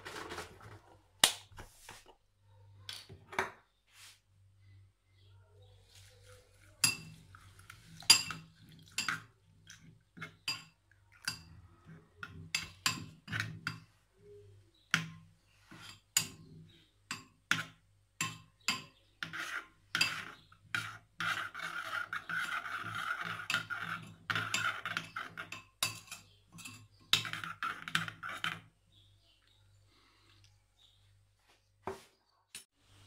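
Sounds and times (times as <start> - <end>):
spoon scraping glass bowl: 17.5 - 28.7.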